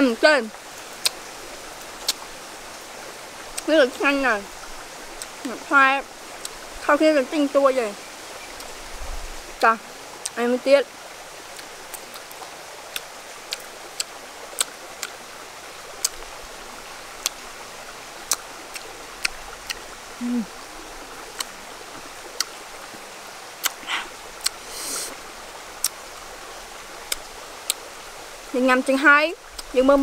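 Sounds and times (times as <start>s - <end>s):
shallow stream rushing: 0.0s - 30.0s
mouth smacking while chewing: 11.6s - 15.2s, 23.6s - 25.2s
fruit peel cracking: 23.6s - 24.6s.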